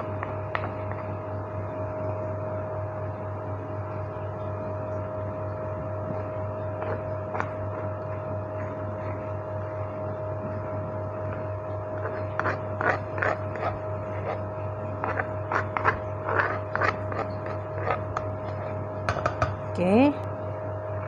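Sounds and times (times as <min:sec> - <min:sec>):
steady hum: 0:00.0 - 0:21.0
plastic spoon scraping a mortar: 0:12.0 - 0:18.8
spoon knocking on bowl: 0:19.1 - 0:19.6.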